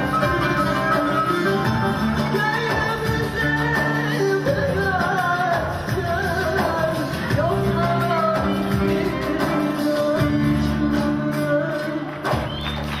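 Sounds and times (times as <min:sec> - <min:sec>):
woman singing into microphone: 0:00.0 - 0:12.6
folk instrumental accompaniment: 0:00.0 - 0:13.0.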